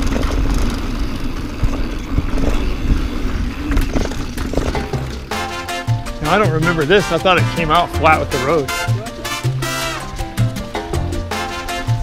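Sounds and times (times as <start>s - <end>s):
wind buffeting microphone: 0.0s - 5.3s
bike knocks and rattles: 0.0s - 5.5s
bike tyres rolling over dirt: 0.0s - 10.8s.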